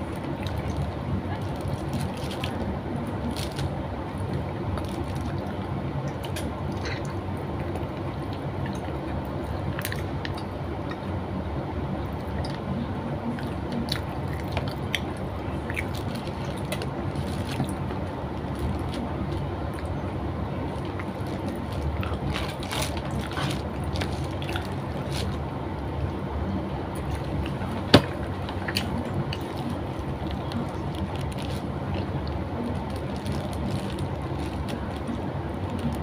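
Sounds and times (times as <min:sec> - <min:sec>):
steady low hum: 0:00.0 - 0:36.0
wet chewing: 0:13.3 - 0:20.0, 0:20.6 - 0:26.1, 0:26.9 - 0:36.0.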